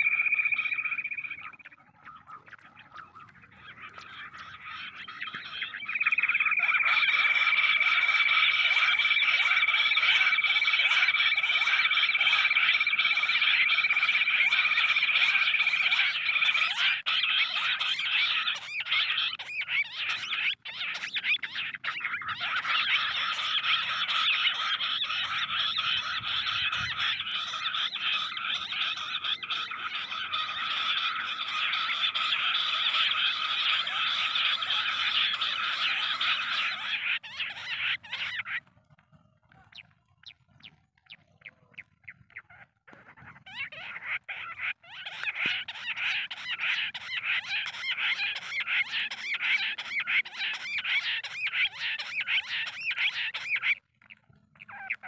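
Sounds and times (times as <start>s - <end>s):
short bird chirps: 0.0s - 9.5s
quail chattering trill: 0.0s - 55.0s.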